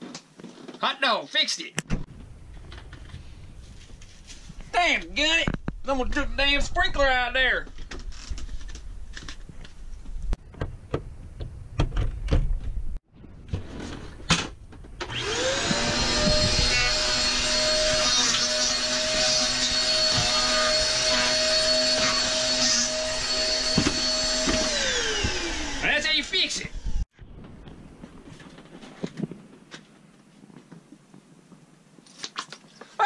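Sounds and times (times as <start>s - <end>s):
vacuum cleaner motor whine: 15.0s - 25.8s.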